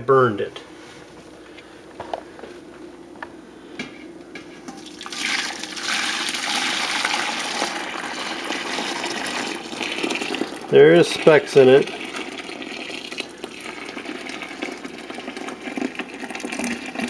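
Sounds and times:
custard pouring and splashing: 0:04.8 - 0:17.0.

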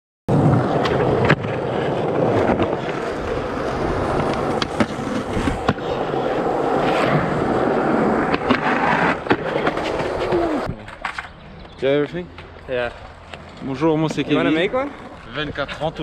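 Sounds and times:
skateboard wheels rolling on concrete: 0:00.3 - 0:16.0
skateboard clacking: 0:00.4 - 0:06.7, 0:07.4 - 0:15.8.

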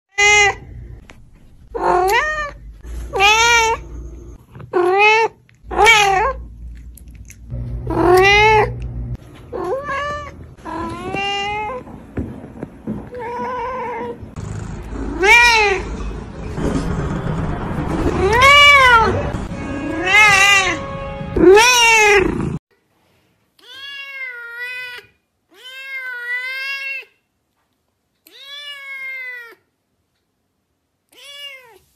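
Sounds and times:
cats meowing: 0:01.7 - 0:06.5, 0:07.9 - 0:08.8, 0:09.5 - 0:11.9, 0:14.9 - 0:16.0.

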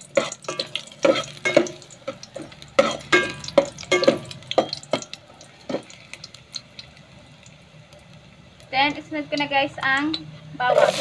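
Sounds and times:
faint oil sizzle: 0:00.0 - 0:11.0
metal ladle scraping pot: 0:00.2 - 0:01.8, 0:10.6 - 0:11.0.

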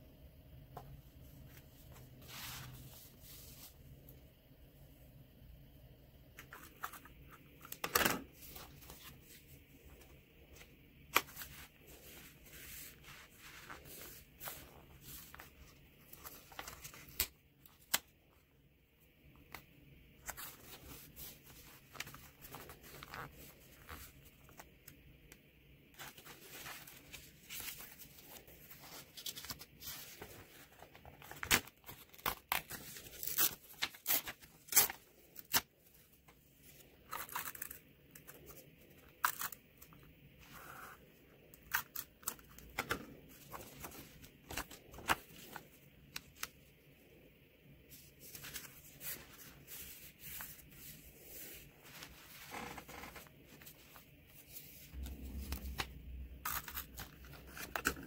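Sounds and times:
paper rustling: 0:06.4 - 0:18.0, 0:20.2 - 0:25.0, 0:26.0 - 0:35.6, 0:41.8 - 0:46.6, 0:47.9 - 0:55.9.

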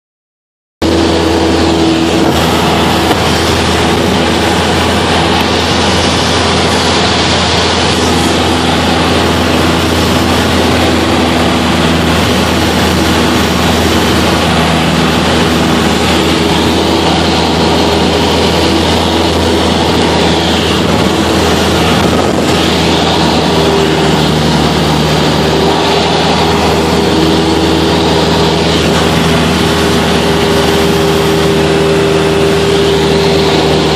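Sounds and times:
airplane engine and propeller: 0:00.8 - 0:33.9
wind rushing: 0:00.8 - 0:33.9.

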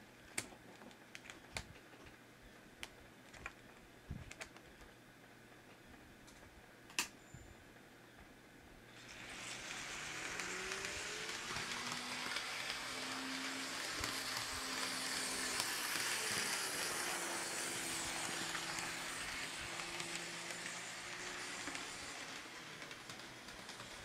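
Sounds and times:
model train running on track: 0:08.9 - 0:24.0.

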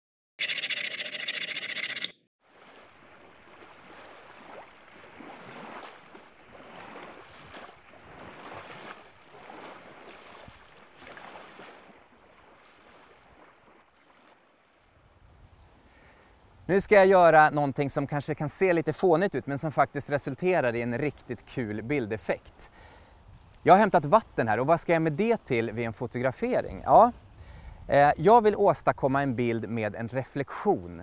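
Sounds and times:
small waves lapping at shore: 0:02.4 - 0:16.7.

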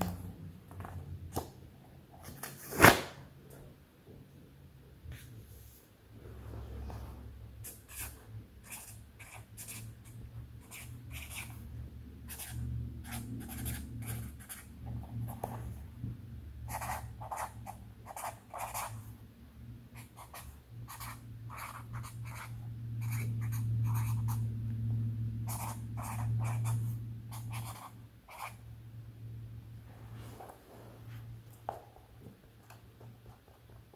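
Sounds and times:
low steady hum: 0:03.2 - 0:33.9
marker writing on paper: 0:07.6 - 0:11.6, 0:12.3 - 0:15.6, 0:16.7 - 0:19.0, 0:20.0 - 0:24.4, 0:25.5 - 0:28.6.

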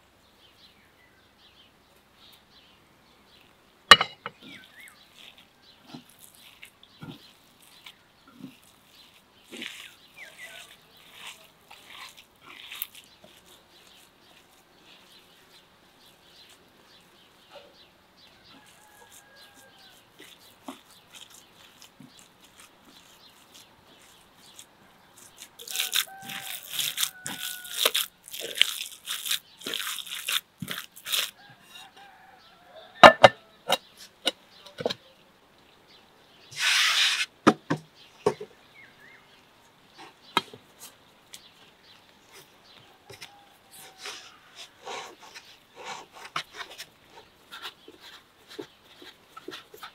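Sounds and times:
rustling: 0:03.4 - 0:32.2, 0:40.0 - 0:49.9
hands squishing minced meat: 0:04.4 - 0:32.8, 0:40.4 - 0:49.9.

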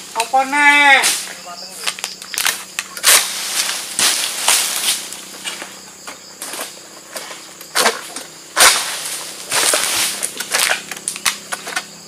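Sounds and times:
sickle blade scraping through stalk: 0:02.9 - 0:05.8, 0:06.4 - 0:11.9.

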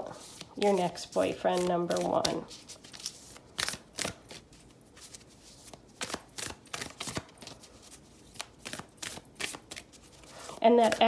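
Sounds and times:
cards being shuffled: 0:00.1 - 0:11.0.

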